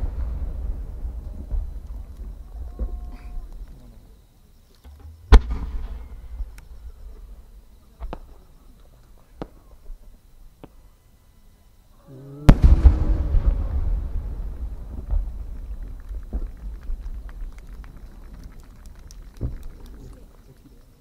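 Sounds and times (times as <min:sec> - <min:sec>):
firework burst bang: 0:00.0 - 0:03.1, 0:04.9 - 0:06.6, 0:12.5 - 0:18.3
firework launch boom: 0:00.0 - 0:03.1, 0:04.9 - 0:06.8, 0:12.4 - 0:20.1
low rumble echoing: 0:12.4 - 0:20.1
faint cracks: 0:14.5 - 0:21.0.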